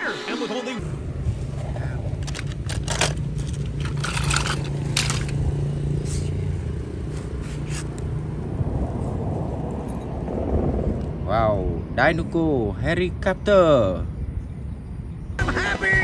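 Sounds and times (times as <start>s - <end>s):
toy cars clicking and scraping: 2.1s - 5.5s.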